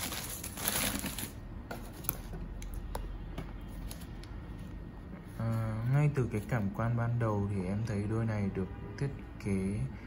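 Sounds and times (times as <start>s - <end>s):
packing wrap crinkling: 0.0s - 1.4s.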